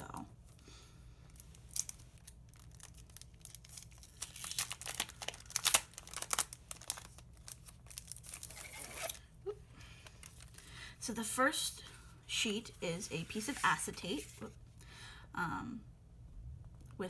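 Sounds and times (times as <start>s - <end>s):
acetate sheet flexing: 1.3s - 9.2s
plastic crinkling and crackling: 1.3s - 9.2s, 10.0s - 10.7s.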